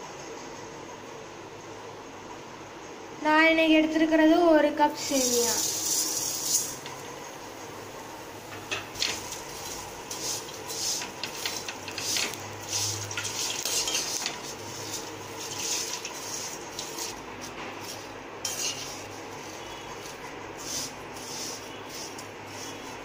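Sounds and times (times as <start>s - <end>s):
metal ladle scraping metal pan: 8.7s - 23.0s.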